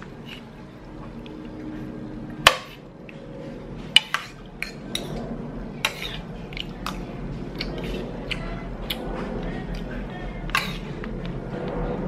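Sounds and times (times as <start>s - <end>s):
cutlery clinking on a plate: 4.0s - 5.2s, 10.5s - 10.9s.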